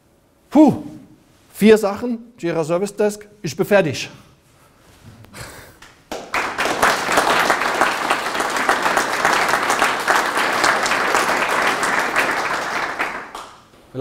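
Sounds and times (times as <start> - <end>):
audience applauding: 6.1 - 13.7.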